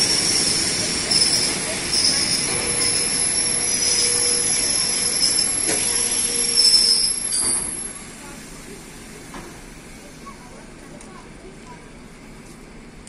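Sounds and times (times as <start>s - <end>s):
train wheel squeal: 0.0s - 8.1s
train coaches rumbling: 0.0s - 13.0s.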